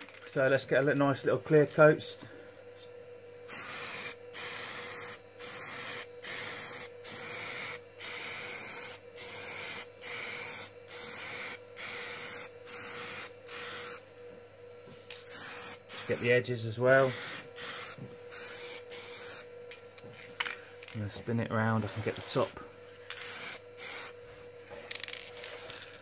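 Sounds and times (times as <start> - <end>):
aerosol can spraying: 3.5 - 14.0, 15.2 - 16.3, 17.0 - 19.5, 23.1 - 24.2.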